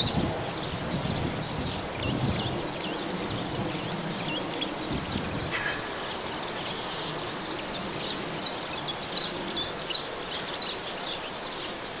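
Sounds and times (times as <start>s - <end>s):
outdoor background hiss: 0.0s - 12.0s
songbird singing: 0.0s - 12.0s.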